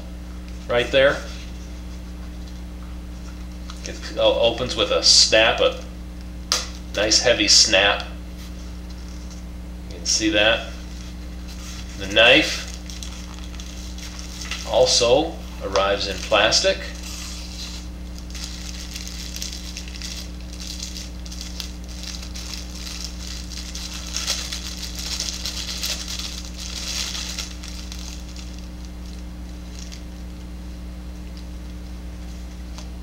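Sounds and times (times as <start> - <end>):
plastic wrap crinkling: 10.8 - 30.4.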